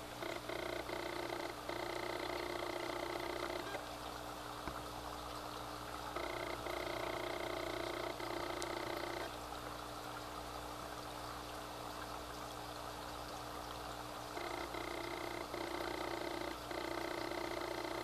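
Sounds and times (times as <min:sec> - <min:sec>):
steady hum: 0:00.0 - 0:18.0
water bubbling from aquarium filter: 0:00.0 - 0:18.0.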